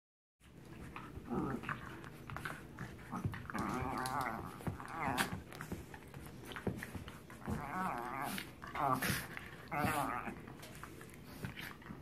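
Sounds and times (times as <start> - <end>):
small dog growling and whining: 1.2 - 1.9, 3.1 - 5.5, 7.4 - 10.5.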